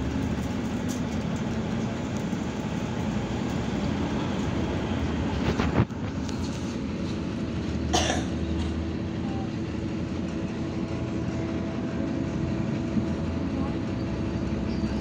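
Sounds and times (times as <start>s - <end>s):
bus engine drone: 0.0s - 15.0s.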